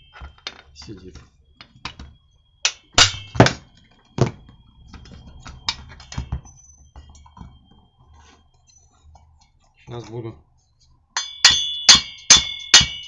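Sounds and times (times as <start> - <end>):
metal knocks and clatter: 0.0 - 7.6.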